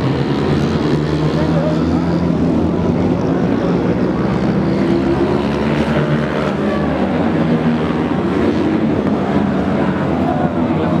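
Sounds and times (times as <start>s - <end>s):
distant motorcycle engines droning: 0.0s - 11.0s.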